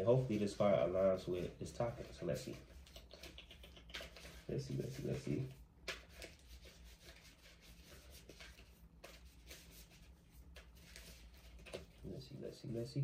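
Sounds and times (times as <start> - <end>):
cards rustling and tapping: 2.0 - 12.0.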